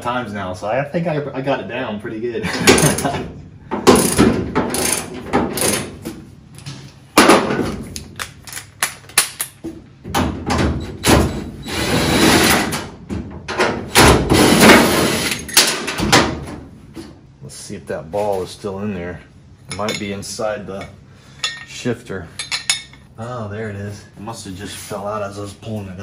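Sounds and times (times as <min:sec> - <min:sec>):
ratchet wrench: 0:03.9 - 0:05.9.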